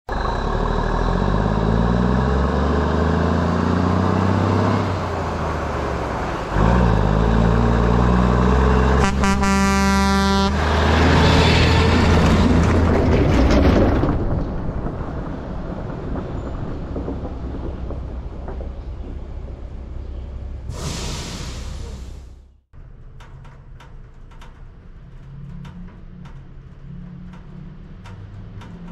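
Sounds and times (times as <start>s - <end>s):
truck engine revving: 0.1s - 22.6s
truck air horn blast: 8.9s - 10.8s
brief whoosh: 20.7s - 22.4s.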